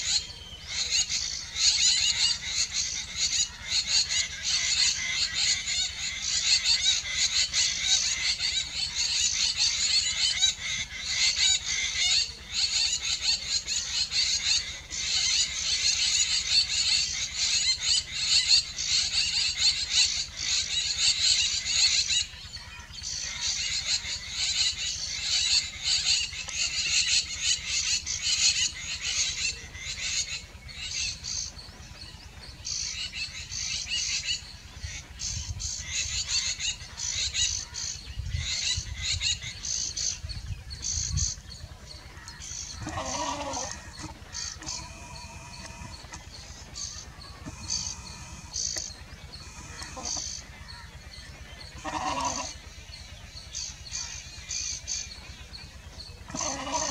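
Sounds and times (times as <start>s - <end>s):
high-pitched animal chorus: 40.8s - 56.9s.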